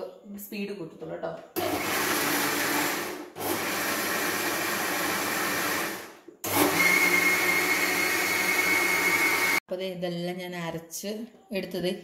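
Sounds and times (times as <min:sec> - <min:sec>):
electric mixer grinder running: 0:01.6 - 0:09.6.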